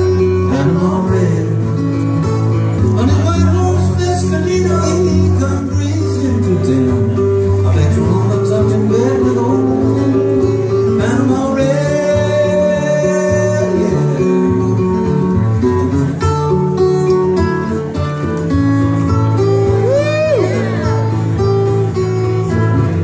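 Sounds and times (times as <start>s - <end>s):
man singing: 0.0s - 15.4s
acoustic guitar strumming: 0.0s - 23.0s.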